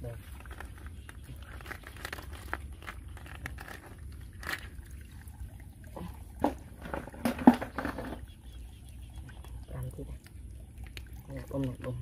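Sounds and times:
water trickling: 0.0 - 12.0
snail shells clicking: 0.4 - 4.7.

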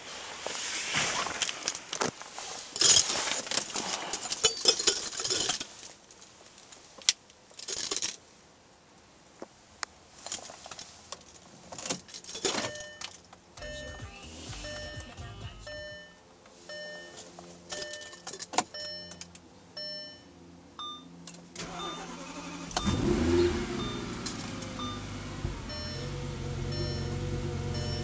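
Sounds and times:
car engine starting and idling: 13.6 - 16.0, 21.2 - 28.0
short electronic beeps: 13.6 - 17.2, 25.7 - 26.1, 26.7 - 28.0.

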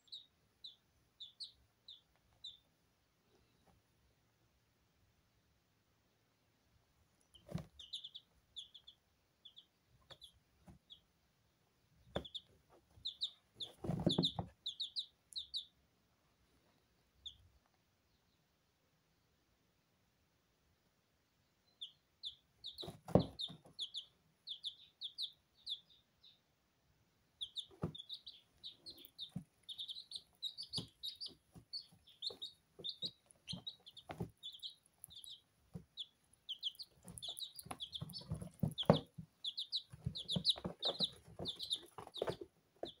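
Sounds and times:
chicks peeping: 0.0 - 4.3, 6.1 - 15.8, 16.4 - 18.5, 21.1 - 43.0.

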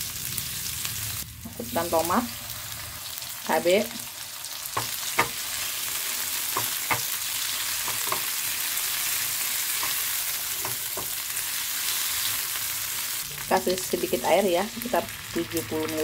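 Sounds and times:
vegetables sizzling in hot oil: 0.0 - 16.0
spatula scraping and tapping pan: 4.8 - 5.4, 6.5 - 7.2, 7.8 - 8.4, 9.7 - 11.2.

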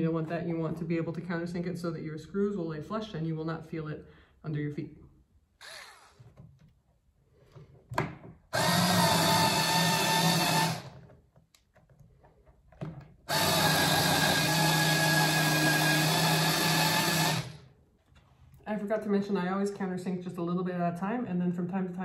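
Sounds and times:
cordless drill running: 5.6 - 6.3, 8.5 - 11.1, 13.3 - 17.7.

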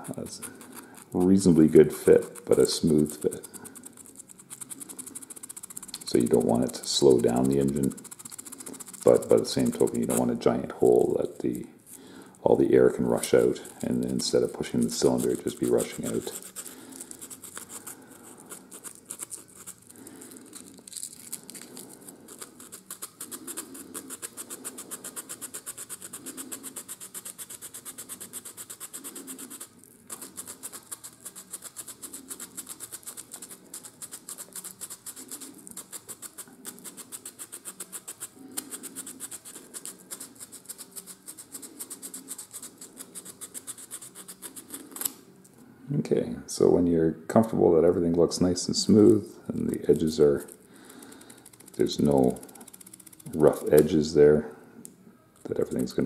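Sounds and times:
hand-sanding wood: 0.0 - 11.2, 12.9 - 17.9, 22.3 - 44.8.

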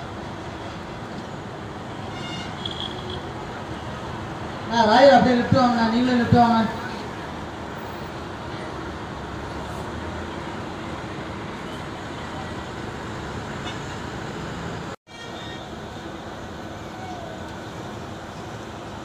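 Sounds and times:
bus diesel engine: 0.0 - 19.0
traffic noise: 0.0 - 19.0.

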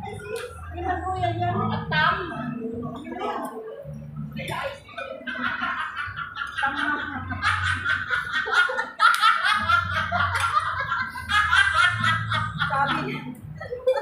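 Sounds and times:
women laughing together: 4.8 - 14.0.

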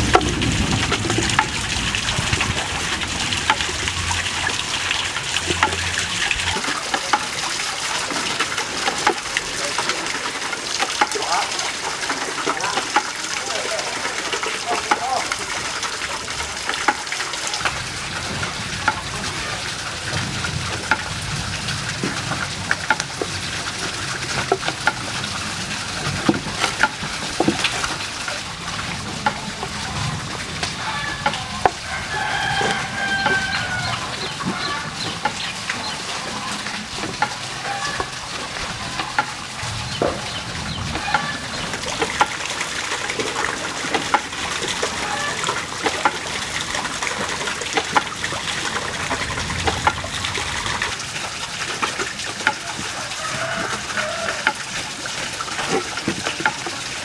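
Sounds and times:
chickens: 30.8 - 35.2.

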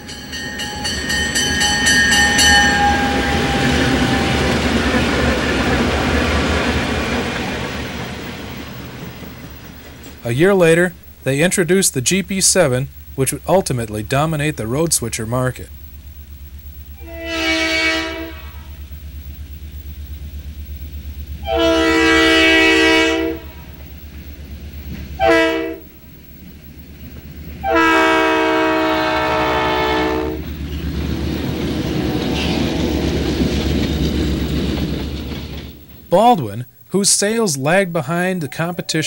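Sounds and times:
diesel engine throbbing: 0.0 - 39.0
train cars rolling past: 0.0 - 39.0
locomotive air horn: 1.7 - 4.6, 17.0 - 18.8, 21.4 - 23.8, 25.2 - 26.0, 27.6 - 30.5.

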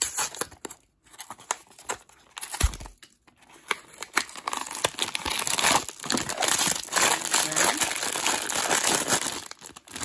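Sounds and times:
foil bag crinkling: 4.3 - 10.0.

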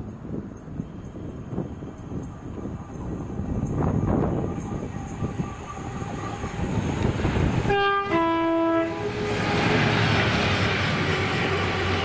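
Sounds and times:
train rumbling past: 0.0 - 12.0
two-tone train horn: 7.0 - 9.7, 11.0 - 12.0.

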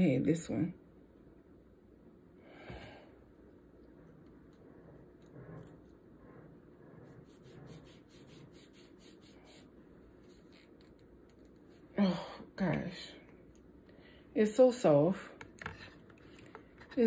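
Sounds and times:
hands rubbing near microphone: 4.4 - 11.8.

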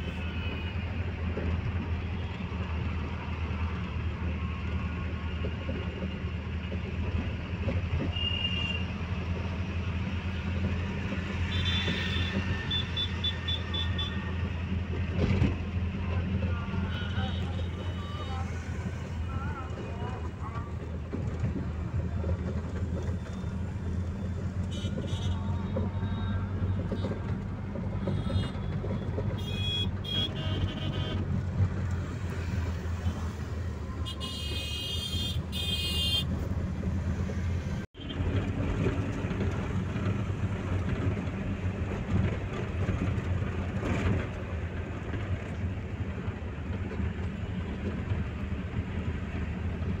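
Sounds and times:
car engine and road rumble: 0.0 - 50.0
car horns honking: 11.4 - 14.4, 24.6 - 27.4, 28.0 - 31.3, 33.9 - 36.3.

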